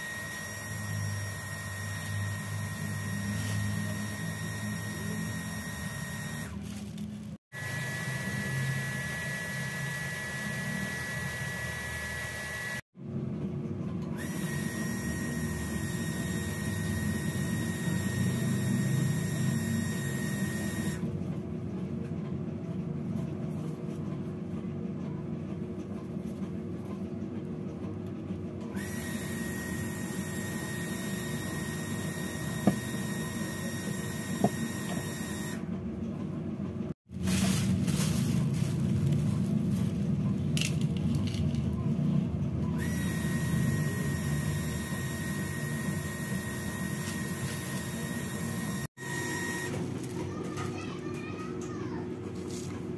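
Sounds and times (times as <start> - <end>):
small electric motor whirring: 0.0 - 6.8, 7.6 - 12.8, 14.2 - 21.0, 28.8 - 35.6, 42.8 - 49.8.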